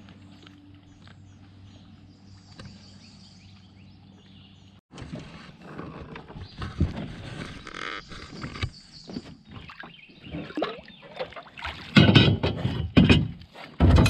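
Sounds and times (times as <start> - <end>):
small birds chirping: 0.0 - 4.8, 6.3 - 11.4
rustling and knocks: 11.9 - 14.0.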